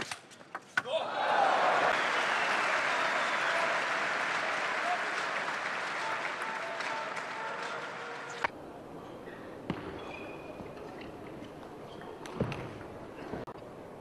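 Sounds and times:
crowd applause: 1.0s - 8.5s.

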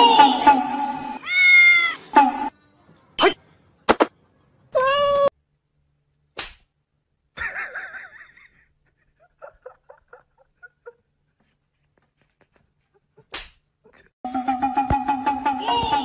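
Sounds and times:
cats meowing: 1.2s - 2.0s.

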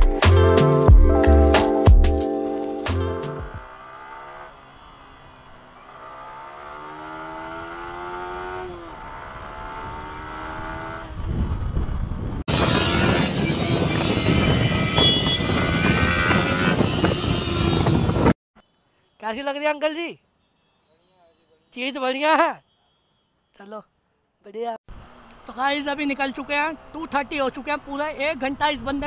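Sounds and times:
motorcycle engine accelerating: 3.4s - 18.4s
wind rushing while riding: 8.7s - 18.4s.

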